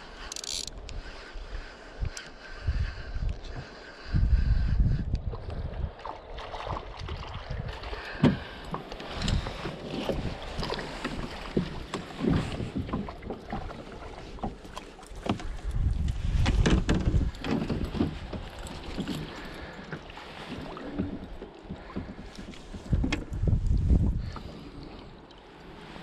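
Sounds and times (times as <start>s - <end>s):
wind buffeting microphone: 0.7s - 14.4s, 15.2s - 19.8s, 20.7s - 25.0s
water knocks and splashes: 5.4s - 24.7s.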